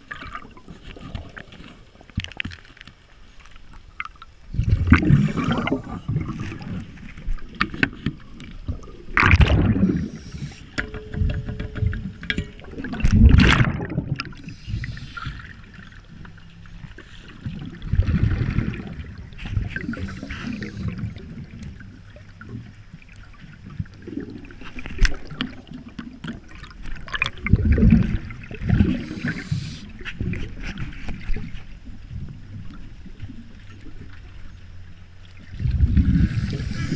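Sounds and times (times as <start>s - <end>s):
underwater exhaled breath bubbling: 4.5s - 6.8s, 8.7s - 10.8s, 17.4s - 21.6s, 24.0s - 30.8s, 35.5s - 36.9s.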